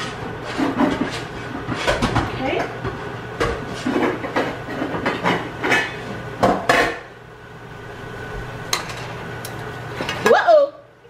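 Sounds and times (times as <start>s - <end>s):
pots and utensils clattering: 0.0s - 7.1s, 8.7s - 10.4s
steady low hum: 0.0s - 10.2s.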